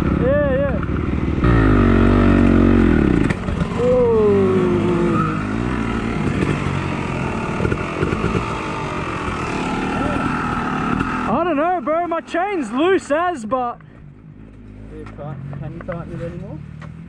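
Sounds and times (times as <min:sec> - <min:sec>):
dirt bike engine revving: 0:00.0 - 0:13.5.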